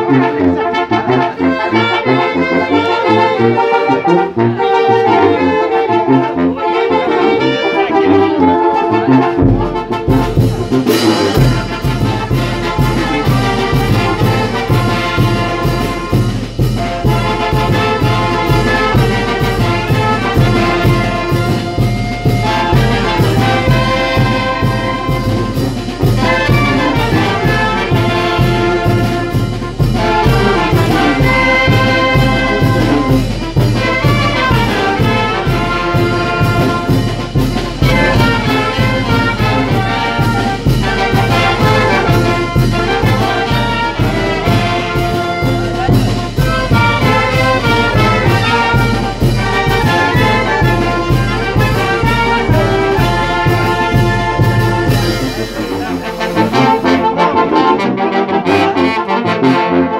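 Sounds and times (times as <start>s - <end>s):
brass band playing: 0.0s - 59.9s.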